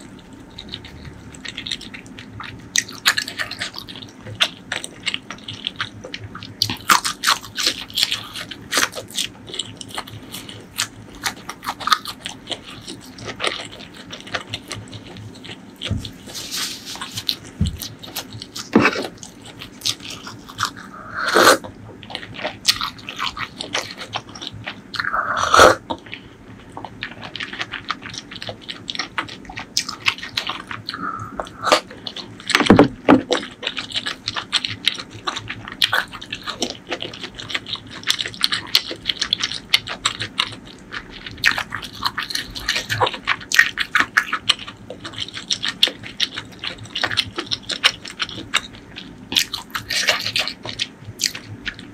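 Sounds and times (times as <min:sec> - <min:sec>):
chewing with mouth clicks: 0:00.0 - 0:51.9
slurping broth: 0:20.9 - 0:21.6.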